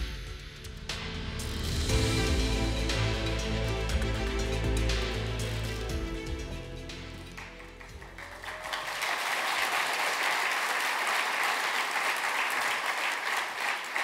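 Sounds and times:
walk-on music: 0.0 - 8.6
audience applauding: 7.3 - 14.0.

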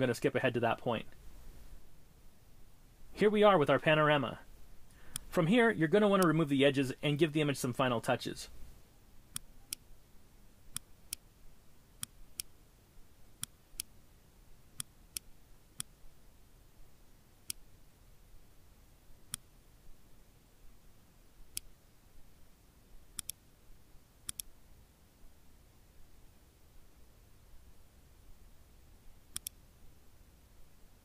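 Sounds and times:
computer mouse clicking: 23.2 - 23.4, 24.3 - 24.5, 29.3 - 29.6.

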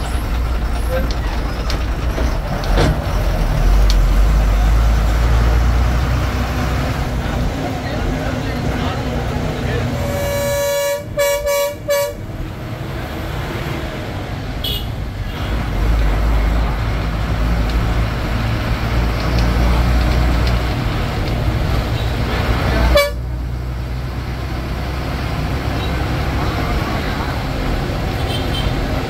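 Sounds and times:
bus engine rumble: 0.0 - 29.0
bus horn honking: 9.8 - 12.4, 14.6 - 15.6, 21.9 - 23.4, 28.1 - 29.0.

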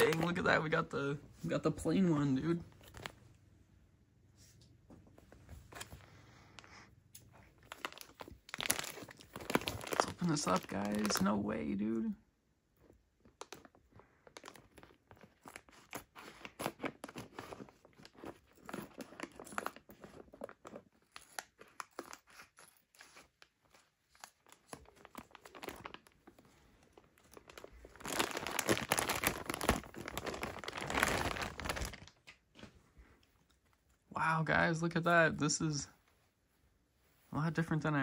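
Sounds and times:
plastic crinkling and rustling: 0.0 - 1.6, 2.6 - 3.2, 5.3 - 11.8, 12.8 - 34.0
scissors cutting plastic bag: 27.4 - 32.2.

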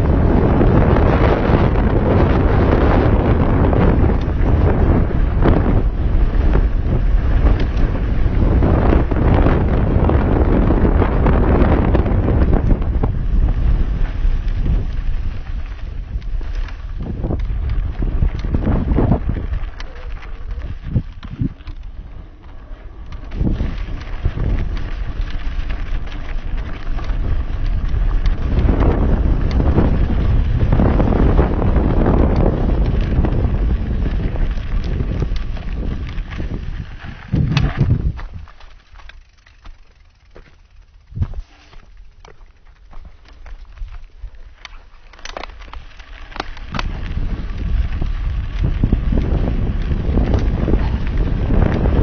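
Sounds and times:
tyres rumbling on dirt: 0.0 - 52.0
wind buffeting microphone: 0.0 - 52.0
small clicks and crunches: 14.2 - 30.0, 32.1 - 52.0.

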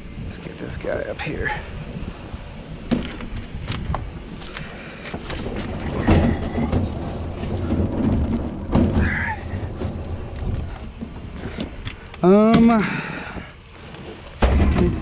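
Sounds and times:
thumps and knocks of junk: 5.1 - 11.8, 14.4 - 15.0.

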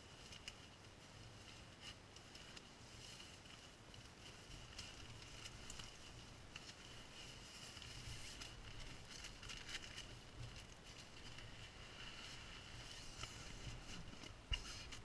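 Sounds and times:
sleeping pad rustling: 0.0 - 15.0.

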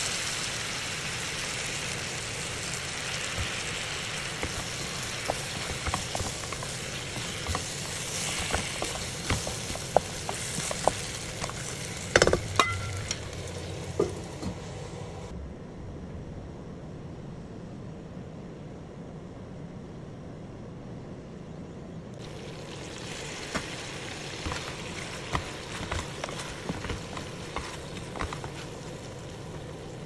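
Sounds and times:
chicken wings sizzling: 0.0 - 15.3, 22.2 - 30.0
metal clattering against pot: 5.4 - 13.2.

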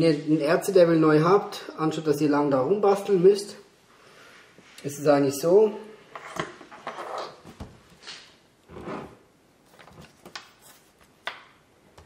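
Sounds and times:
handling knocks and scrapes: 6.1 - 11.2.

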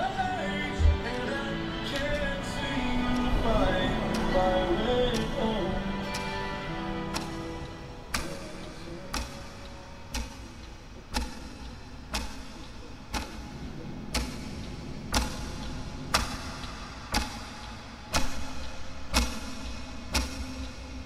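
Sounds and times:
clock ticking: 0.0 - 21.0.

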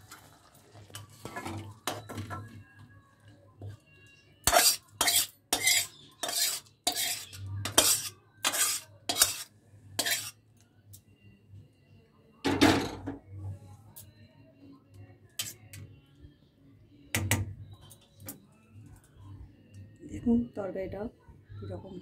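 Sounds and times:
metal spatula scraping metal pan: 4.4 - 10.4.

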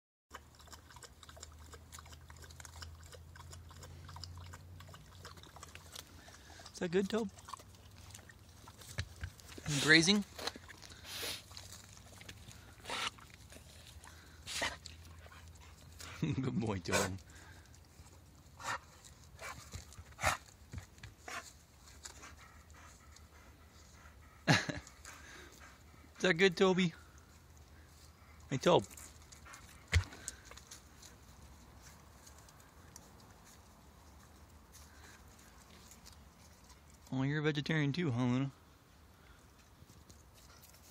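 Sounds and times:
dog chewing leaves: 0.3 - 23.2, 28.7 - 37.2
dog snuffling and crunching leaves: 7.2 - 20.6.

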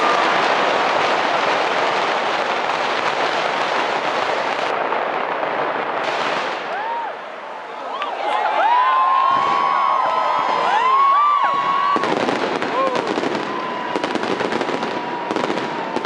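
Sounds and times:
firecrackers crackling: 0.0 - 16.0
firework whistle: 10.5 - 16.0.

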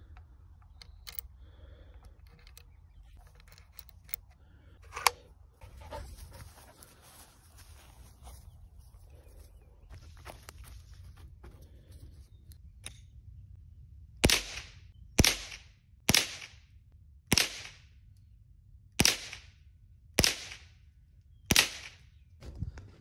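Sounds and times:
rifle shots with echo: 14.2 - 16.6, 17.3 - 17.8, 19.0 - 19.5, 20.2 - 20.7, 21.5 - 22.0.

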